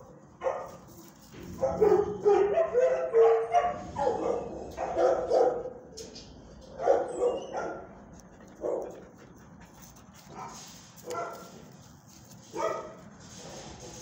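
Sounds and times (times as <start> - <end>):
dog barking: 0.4 - 0.8, 1.5 - 5.8, 6.8 - 7.9, 8.6 - 9.0, 10.3 - 11.5, 12.5 - 13.0.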